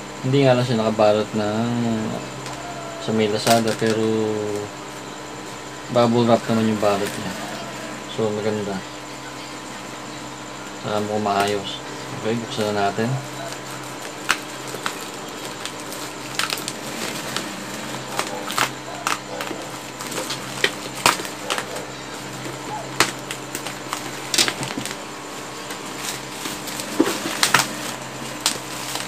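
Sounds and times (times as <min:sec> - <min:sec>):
bubble wrap crinkling and crackling: 0:12.6 - 0:29.0.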